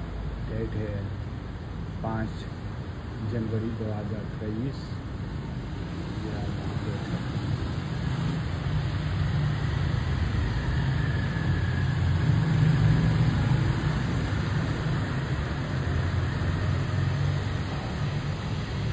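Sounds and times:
city traffic rumble: 0:00.0 - 0:18.9.

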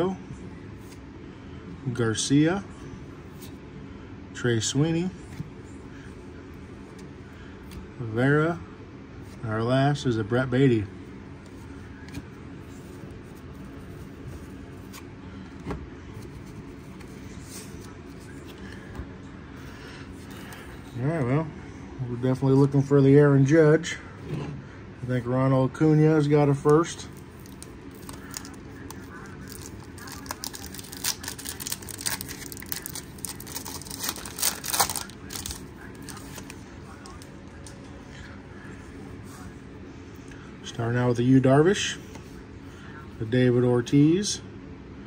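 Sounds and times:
low background hum: 0:00.0 - 0:45.0
foil wrapper crinkling: 0:27.2 - 0:37.3.

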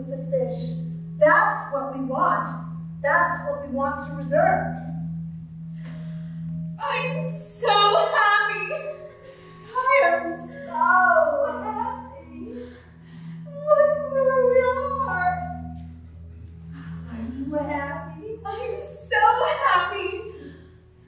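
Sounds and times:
woman singing long held notes: 0:06.8 - 0:15.9.

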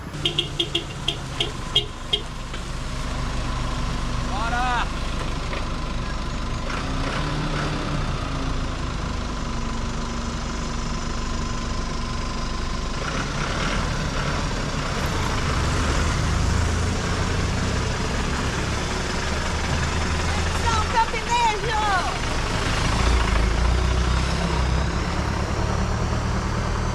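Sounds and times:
utility vehicle engine approaching: 0:00.0 - 0:26.9
pickup truck engine at low speed: 0:08.0 - 0:26.9.

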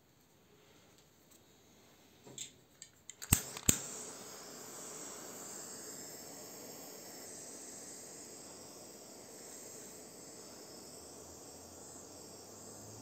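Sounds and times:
handling clicks: 0:02.4 - 0:03.9
torch igniter clicks: 0:02.4 - 0:04.2
jet flame hissing: 0:03.1 - 0:13.0.

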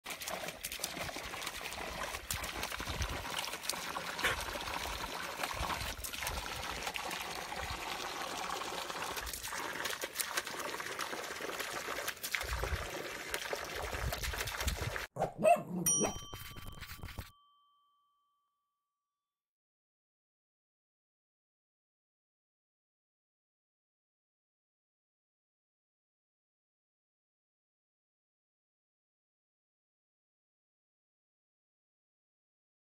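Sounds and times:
water pouring into a trough: 0:00.0 - 0:15.1.

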